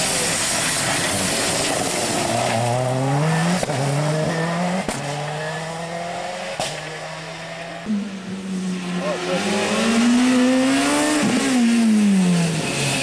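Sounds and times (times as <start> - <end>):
loud hiss: 0.0 - 3.0
rally cars at full throttle: 0.0 - 13.0.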